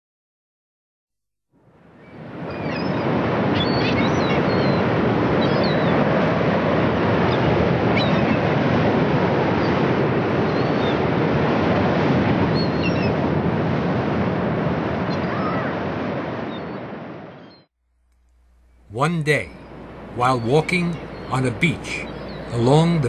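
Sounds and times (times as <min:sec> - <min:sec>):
ocean waves breaking: 0:01.6 - 0:17.5, 0:18.3 - 0:23.0.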